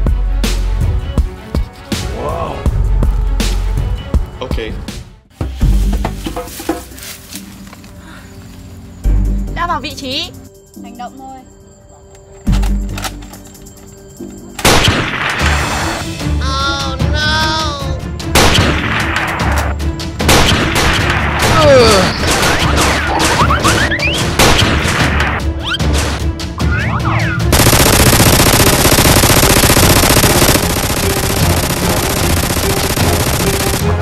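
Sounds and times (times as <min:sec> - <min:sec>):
background music: 0:00.0 - 0:34.0
gunshots: 0:18.4 - 0:19.3, 0:20.2 - 0:25.4, 0:27.5 - 0:34.0
machine-gun burst: 0:27.5 - 0:34.0.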